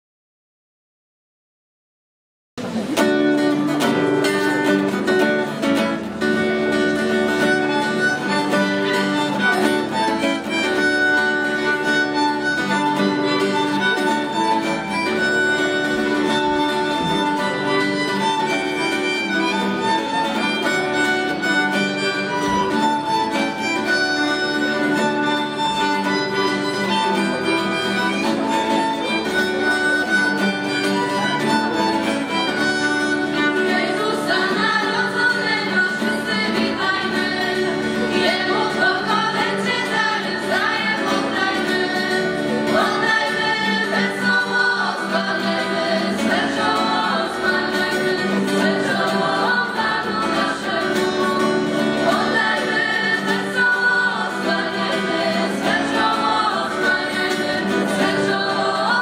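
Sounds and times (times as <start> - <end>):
acoustic guitar: 2.6 - 59.0
violins playing: 5.5 - 59.0.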